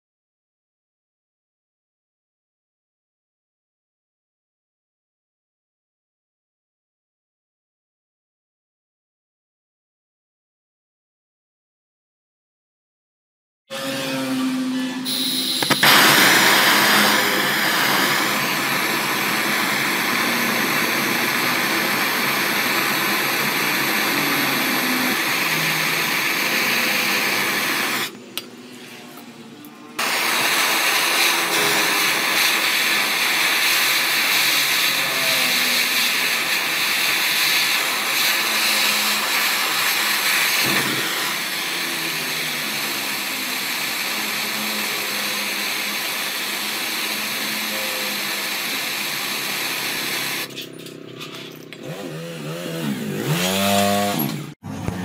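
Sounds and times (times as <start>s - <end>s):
gas torch flame hissing: 15.0s - 28.5s, 30.0s - 50.5s.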